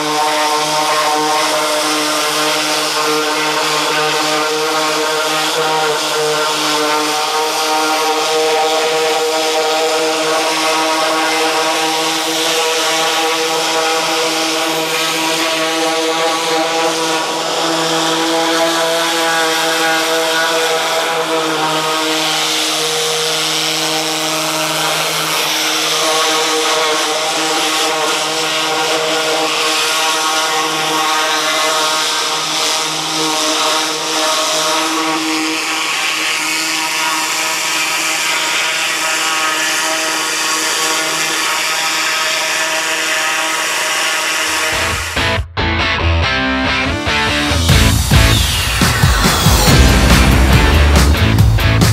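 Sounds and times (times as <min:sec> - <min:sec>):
high-pressure spray hissing on metal: 0:00.0 - 0:44.8
pressure washer engine running: 0:00.0 - 0:45.4, 0:47.0 - 0:51.9.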